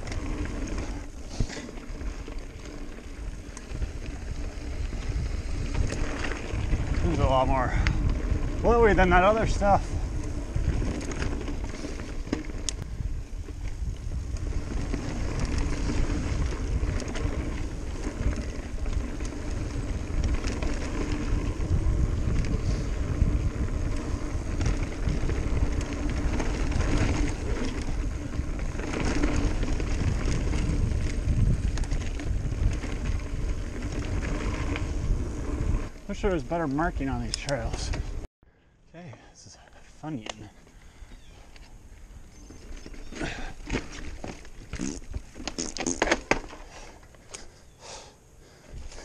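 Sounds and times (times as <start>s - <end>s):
bike rattling over bumps: 0.0s - 38.3s, 40.1s - 49.0s
wind rumble on microphone: 0.0s - 38.3s
tyres on packed dirt: 0.0s - 49.0s.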